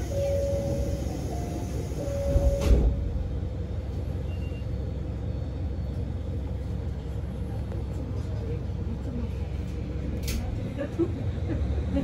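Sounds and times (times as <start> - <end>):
two-tone door chime: 0.0 - 2.9
diesel engine rumbling: 0.0 - 12.0.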